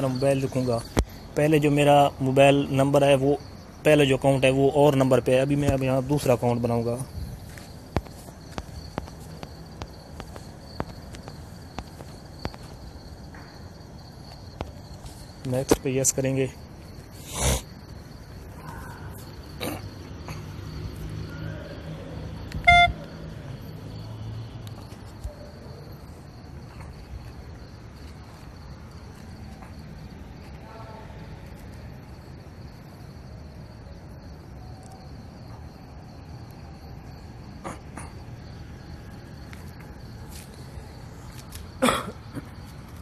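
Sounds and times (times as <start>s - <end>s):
crickets chirping: 0.0s - 43.0s
short loud beep: 22.6s - 23.0s.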